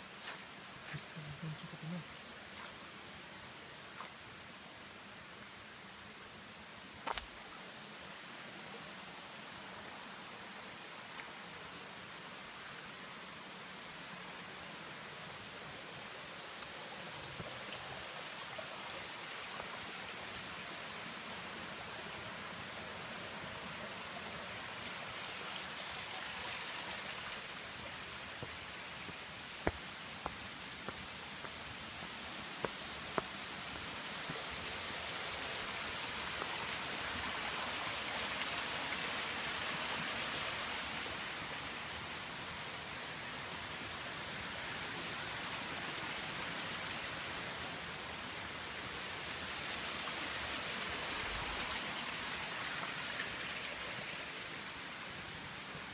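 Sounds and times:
rushing hiss of water: 7.6 - 55.9.

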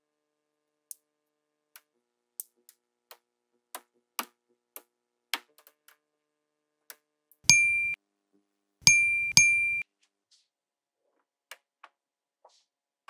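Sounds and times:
magnetic balls clicking: 7.5 - 8.0, 8.9 - 9.8.

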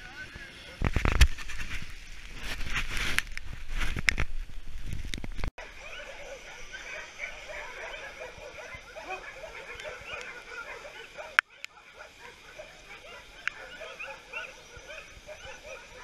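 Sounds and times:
dogs barking and yelping: 5.6 - 16.0.

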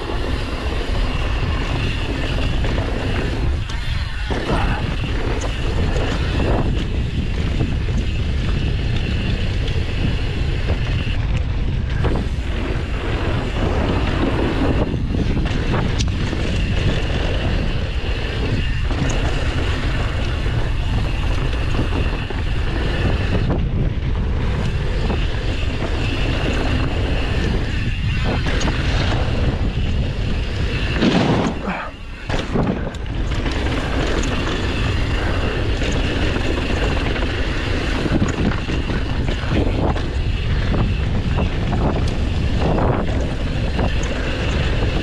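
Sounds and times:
bike rumbling on trail: 0.0 - 45.0
wind buffeting microphone: 0.0 - 45.0.

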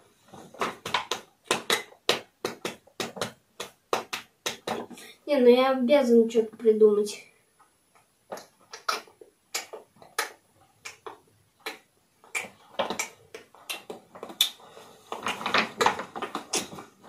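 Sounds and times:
rustling: 12.2 - 17.0.

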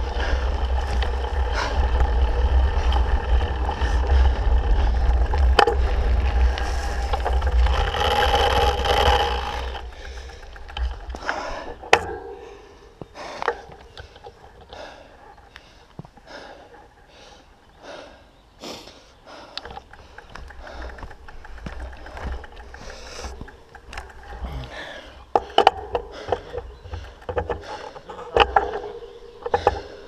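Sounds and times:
low rumble: 0.0 - 14.2
bike tyres crunching on gravel: 0.0 - 16.4, 19.3 - 30.0
bike rattling: 0.0 - 18.2, 19.3 - 30.0.

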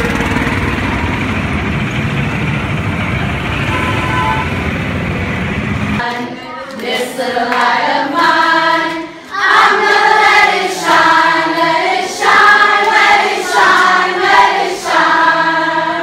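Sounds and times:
children and adults singing: 6.0 - 16.0.

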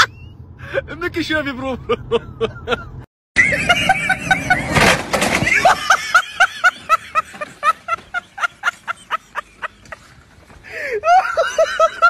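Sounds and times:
high-pitched laughter: 1.8 - 4.8, 11.0 - 12.0.

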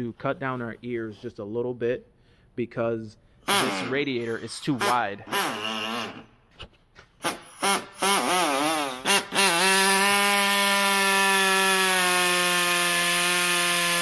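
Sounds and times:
power tool motor whining: 4.8 - 6.3, 7.2 - 14.0.

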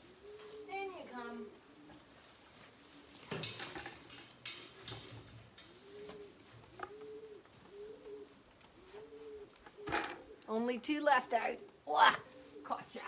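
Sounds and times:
pigeons cooing: 0.0 - 13.0
plastic bucket rustling and knocking: 9.8 - 10.3.

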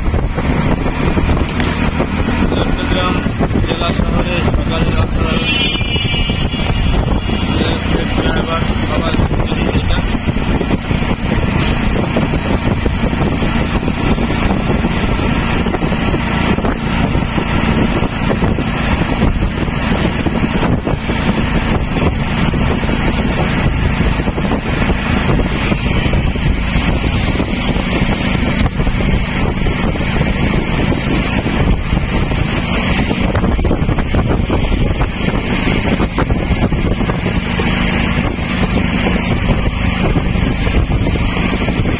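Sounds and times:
auto-rickshaw engine running: 0.0 - 41.9
wind buffeting microphone: 0.0 - 41.9.

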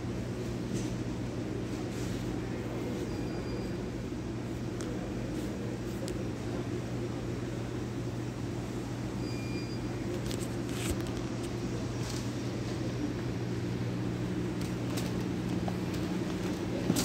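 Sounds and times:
store hum: 0.0 - 17.0
faint short beep: 3.1 - 3.8, 9.2 - 10.0
shopping cart rumbling: 14.4 - 17.0.

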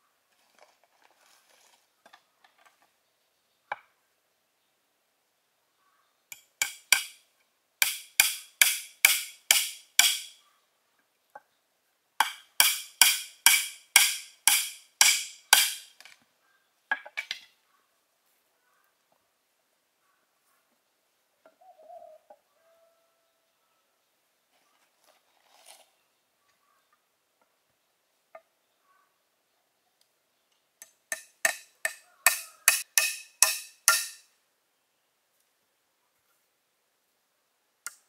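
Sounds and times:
tool striking bamboo: 6.3 - 7.2, 7.8 - 10.4, 12.2 - 16.1, 30.8 - 34.3.

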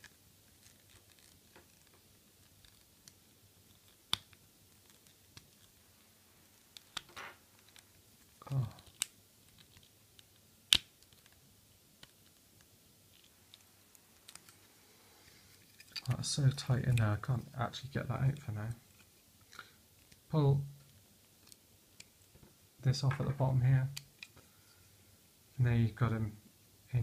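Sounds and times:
sharp plastic snaps: 8.7 - 11.4.

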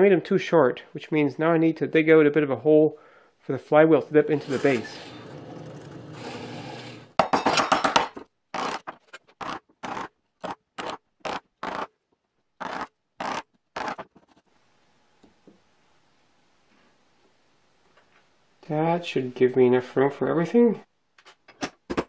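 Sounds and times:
drill press running: 8.6 - 10.1
chisel scraping wood: 8.6 - 11.9, 12.6 - 14.4.

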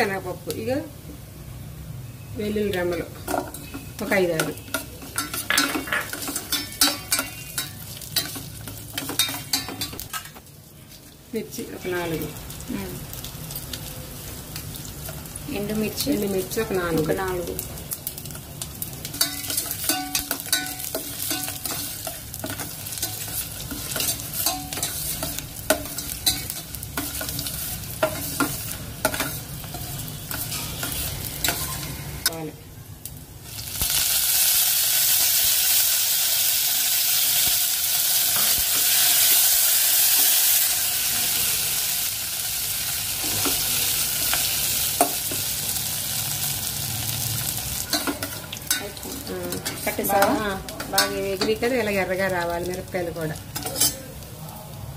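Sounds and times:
seeds sizzling in hot oil: 0.0 - 54.8
spoon stirring: 19.1 - 31.8.

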